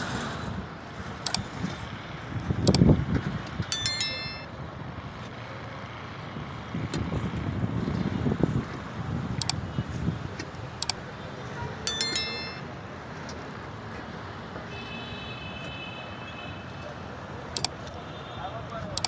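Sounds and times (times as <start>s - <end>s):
faint high steady tone: 3.7s - 4.5s, 11.9s - 12.7s
sharp metallic clink: 3.7s - 4.5s, 11.9s - 12.7s.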